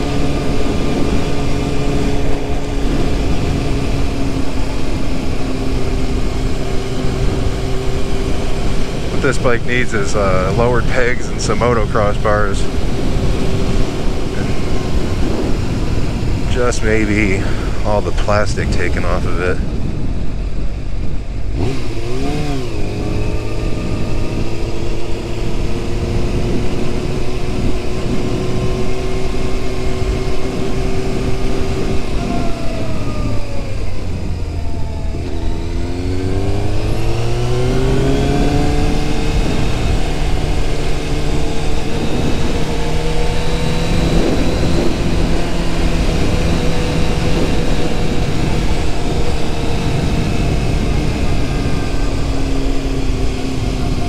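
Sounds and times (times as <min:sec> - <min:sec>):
motorcycle engine revving: 0:00.0 - 0:54.0
wind rushing: 0:00.0 - 0:54.0.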